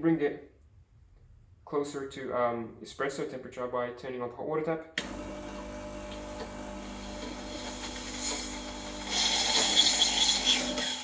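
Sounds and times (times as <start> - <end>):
pump humming: 5.0 - 11.0
hot water sputtering and hissing: 6.8 - 11.0.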